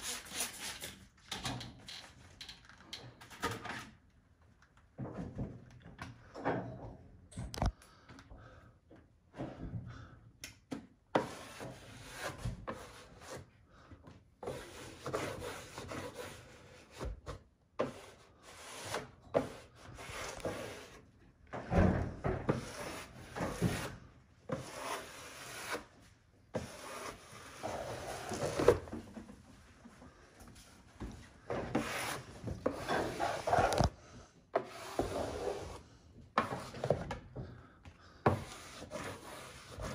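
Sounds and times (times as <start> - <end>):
smoothing tool swishing on wallpaper: 22.6 - 25.9, 26.6 - 28.7, 31.7 - 33.9, 38.4 - 39.9.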